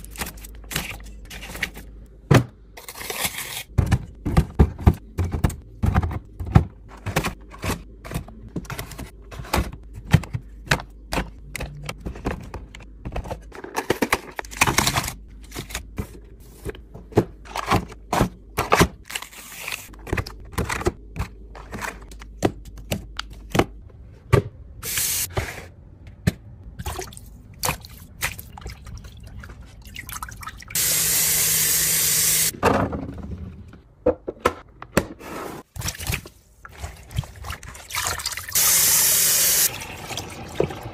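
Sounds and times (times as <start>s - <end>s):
plastic containers clicking and knocking: 3.8s - 15.2s, 20.0s - 24.5s.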